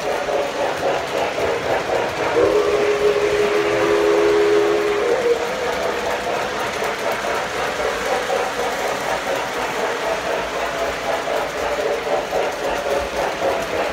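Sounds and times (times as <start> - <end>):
model train rattling on track: 0.0 - 13.9.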